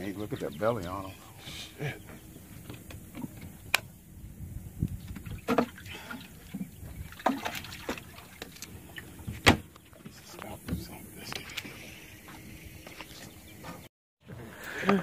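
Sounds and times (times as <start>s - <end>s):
knocks and clicks on boat: 2.1s - 3.9s, 4.8s - 11.7s
water lapping at boat hull: 4.8s - 13.9s.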